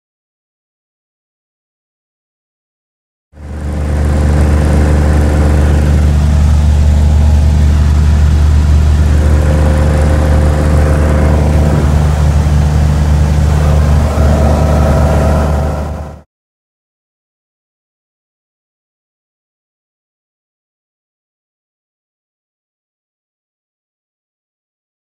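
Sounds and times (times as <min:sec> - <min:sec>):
airplane engine and propeller drone: 0:03.4 - 0:16.2.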